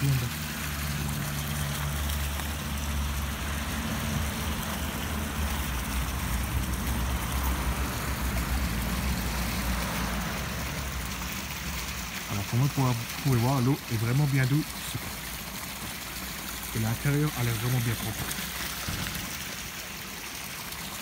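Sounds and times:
fountain water splashing: 0:00.0 - 0:21.0.

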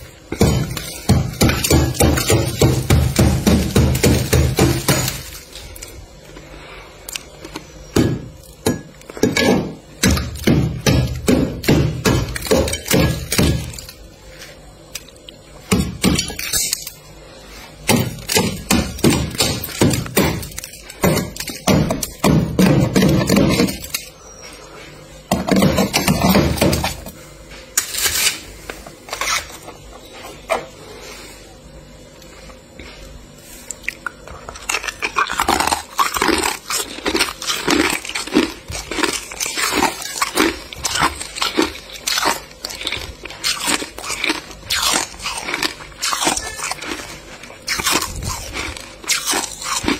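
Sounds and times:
metal scraper chopping ice: 0:00.3 - 0:05.4, 0:08.7 - 0:13.9.

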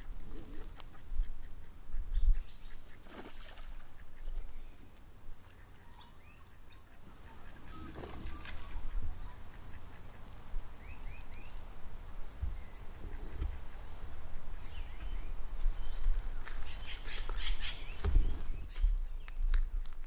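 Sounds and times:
birds chirping and calling: 0:00.0 - 0:11.6, 0:12.4 - 0:19.6
wind rumbling on microphone: 0:07.7 - 0:09.4, 0:10.4 - 0:20.0.

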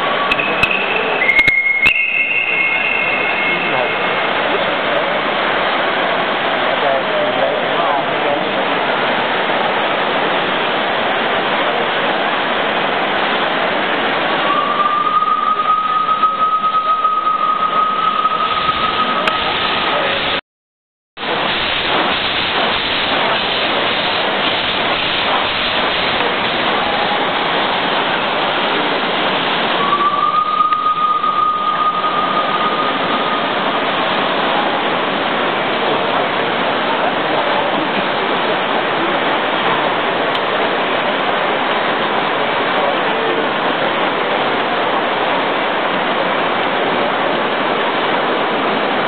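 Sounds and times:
high steam whistle: 0:00.0 - 0:05.2, 0:14.2 - 0:20.4, 0:29.4 - 0:35.0
steam hissing: 0:00.0 - 0:12.0, 0:12.6 - 0:20.4, 0:21.2 - 0:39.6.

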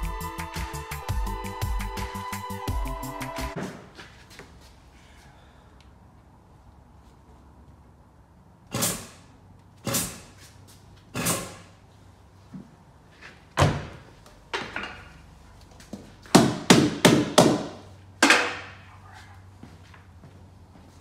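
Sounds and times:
hammer striking sheet steel: 0:08.7 - 0:09.2, 0:11.1 - 0:11.7.

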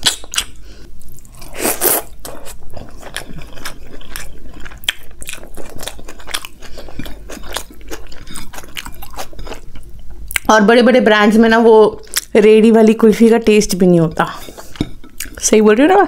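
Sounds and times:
close-miked chewing: 0:00.0 - 0:10.5, 0:14.1 - 0:15.4.

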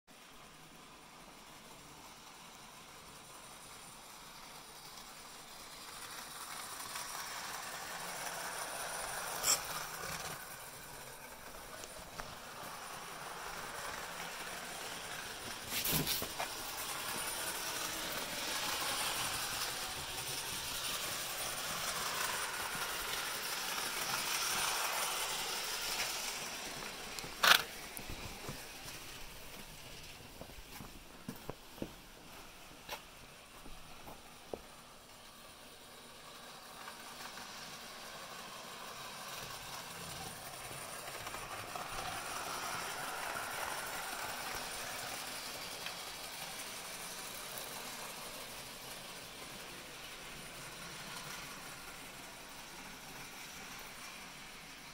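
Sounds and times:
model train running on track: 0:00.2 - 0:54.9.

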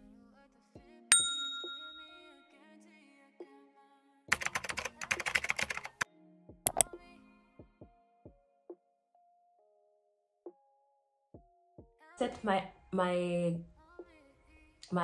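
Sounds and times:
faint background music: 0:00.0 - 0:15.0
metallic ding: 0:01.1 - 0:02.4.

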